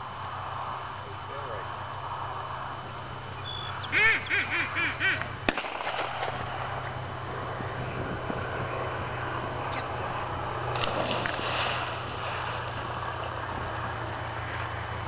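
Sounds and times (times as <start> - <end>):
duck call quacks: 3.8 - 5.3
gunshot: 5.5 - 6.6.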